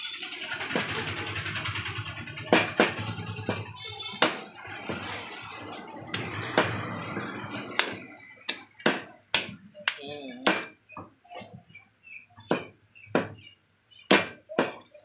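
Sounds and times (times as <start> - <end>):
cleaver chopping on wooden block: 4.2 - 4.4, 7.8 - 9.6, 10.4 - 10.8, 12.5 - 13.4, 14.1 - 14.8.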